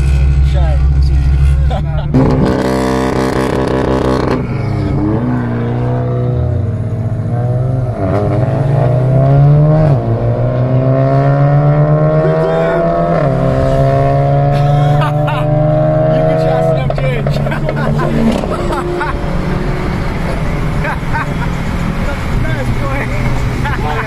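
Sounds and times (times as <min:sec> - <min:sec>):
car engine accelerating: 0:00.0 - 0:24.0.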